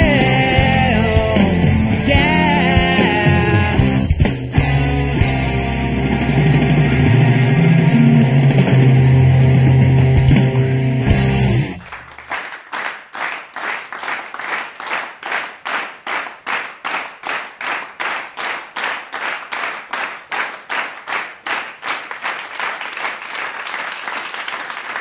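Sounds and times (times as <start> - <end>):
heavy rock music with electric guitar: 0.0 - 11.8
applause: 11.8 - 25.0
audience clapping in time: 11.8 - 25.0.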